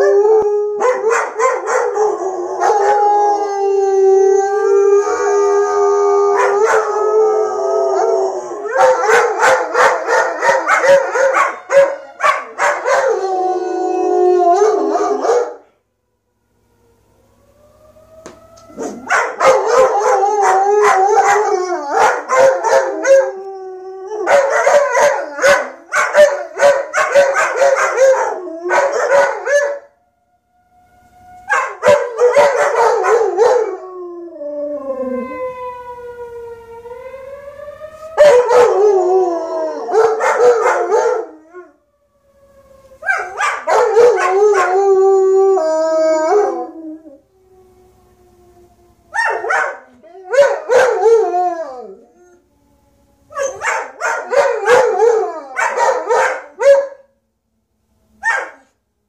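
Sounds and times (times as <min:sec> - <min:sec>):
dogs howling: 0:00.0 - 0:15.6, 0:18.2 - 0:29.9, 0:31.4 - 0:37.0, 0:37.9 - 0:41.8, 0:42.8 - 0:47.4, 0:48.6 - 0:52.5, 0:53.2 - 0:57.0.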